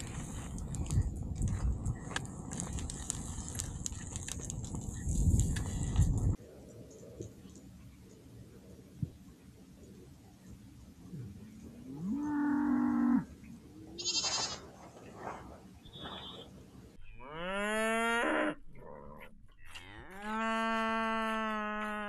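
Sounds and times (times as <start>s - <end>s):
cattle mooing: 11.8s - 13.3s, 17.2s - 22.0s.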